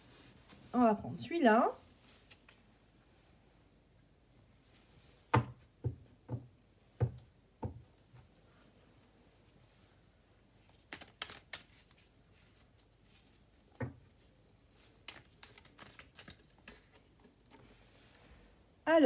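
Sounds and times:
cards flicking and tapping: 10.8 - 12.0, 15.0 - 17.2.

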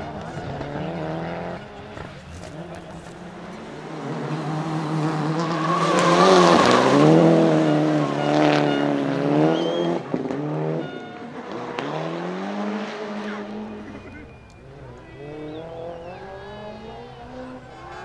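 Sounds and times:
rally car engine revving: 0.0 - 18.0
tyres squealing: 5.3 - 10.0.

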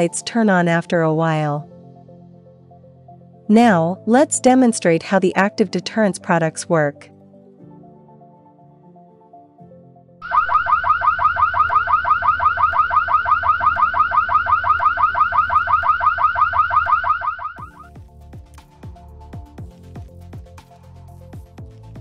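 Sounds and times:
electronic siren yelping: 10.2 - 17.8.

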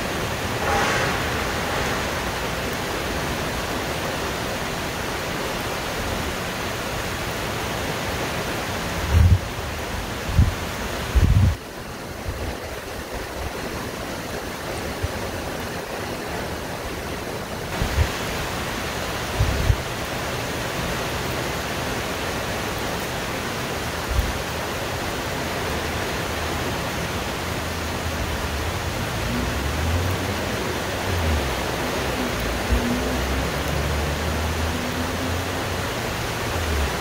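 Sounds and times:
heavy rain on leaves: 0.0 - 37.0
wind buffeting microphone: 9.0 - 15.9, 19.2 - 19.9.

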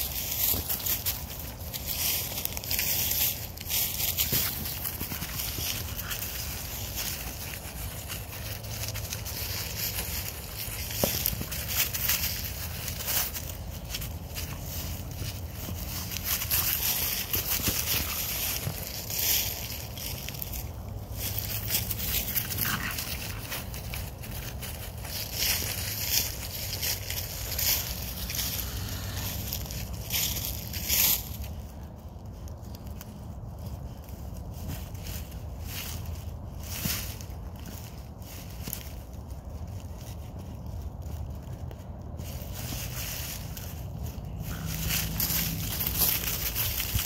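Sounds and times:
dry leaves rustling and crackling: 0.0 - 47.0.

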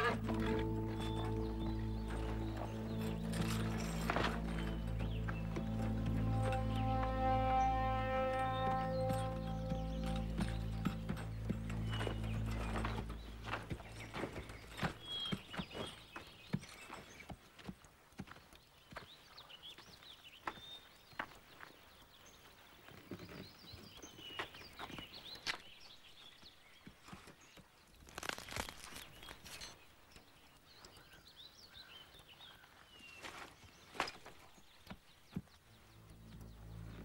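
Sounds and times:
bird chirps: 0.0 - 17.3
footsteps on dirt: 0.0 - 29.7, 32.1 - 37.0
horse hooves on dirt: 0.0 - 37.0
rustling noise: 28.0 - 29.8.

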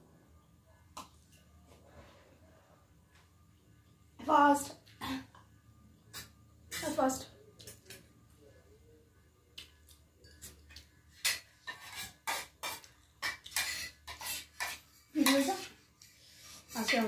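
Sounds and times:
spoons clinking on metal plates: 10.2 - 15.7, 16.8 - 17.0.

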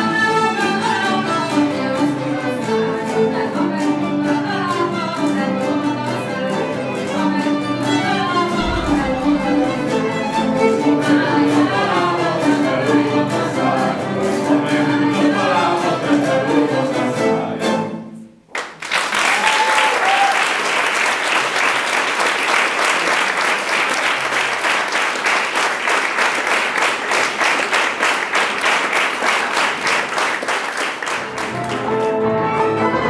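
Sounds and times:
song with fiddle and guitar: 0.0 - 18.2, 31.5 - 33.0
audience applause: 18.5 - 32.3.

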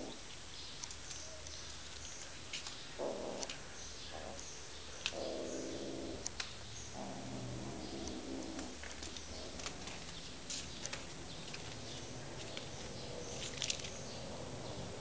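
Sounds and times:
low steady hum: 0.0 - 15.0
kitten claws scratching wooden floor: 8.1 - 14.0.

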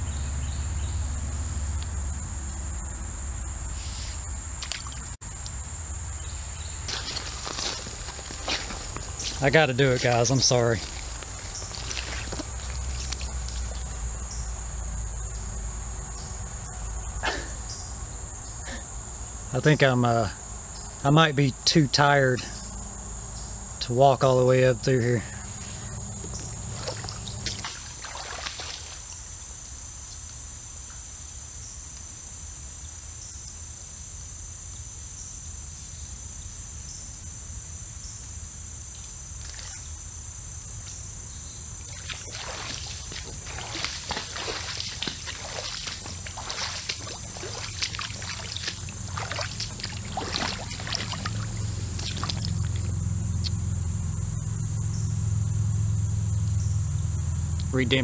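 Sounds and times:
high-pitched insect drone: 0.0 - 58.0
boots splashing through water: 4.6 - 5.2, 6.4 - 14.0, 26.4 - 29.2, 41.8 - 52.9.

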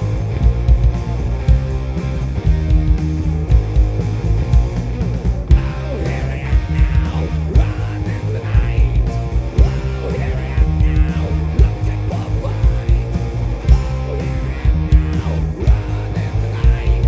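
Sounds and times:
electric guitar bending notes: 0.0 - 17.0
rock band playing live: 0.0 - 17.0.

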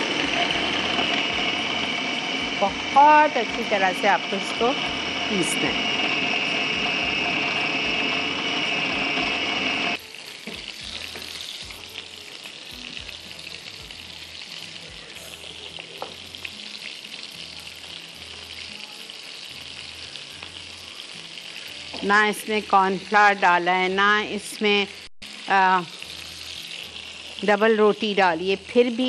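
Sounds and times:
electric food chopper grinding: 0.0 - 11.7
kababs sizzling in oil: 0.0 - 29.0.

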